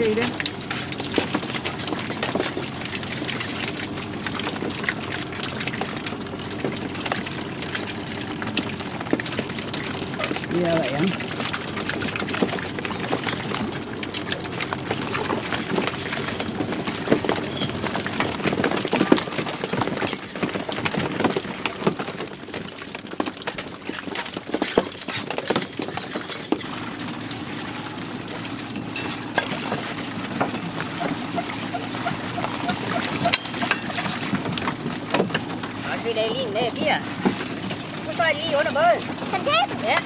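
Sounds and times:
water splashing: 0.0 - 40.0
motor hum: 25.7 - 40.0
clicks knocks and clinks: 27.7 - 35.8.

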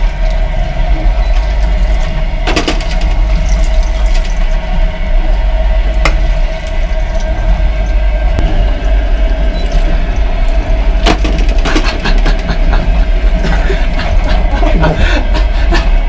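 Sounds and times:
train rumbling: 0.0 - 16.0.

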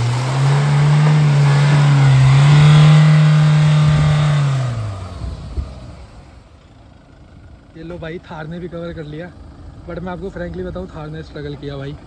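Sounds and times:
suv engine revving hard: 0.0 - 6.4.

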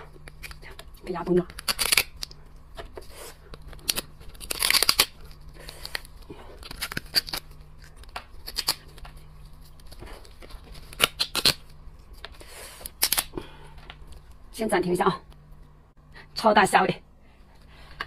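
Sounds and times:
lobster shell cracking: 1.5 - 2.4, 3.5 - 5.3, 5.9 - 9.0, 10.4 - 11.6, 12.9 - 13.3.

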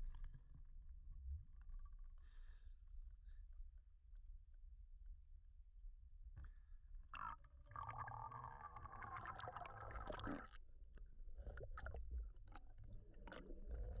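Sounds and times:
underwater rush of bubbles: 7.7 - 10.6.

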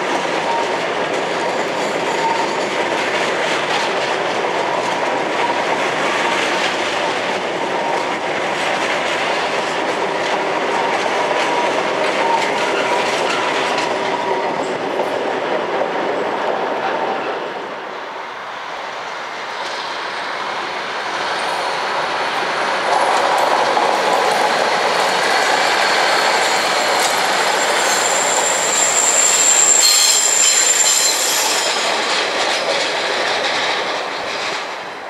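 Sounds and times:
diesel train running past: 0.0 - 35.0
high wheel squeal: 24.4 - 32.9.

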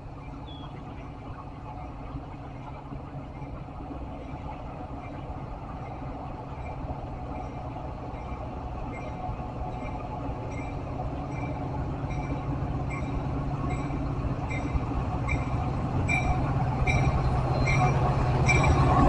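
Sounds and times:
diesel locomotive rumbling: 0.0 - 19.0
locomotive bell ringing: 10.5 - 19.0.

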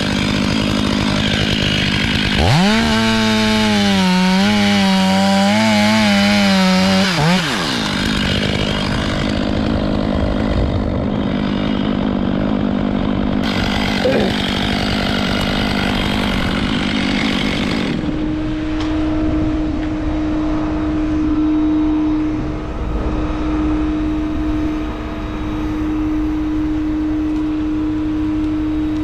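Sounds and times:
chainsaw cutting wood: 0.0 - 19.0, 25.8 - 29.0
mechanical drone with whine: 18.0 - 29.0.

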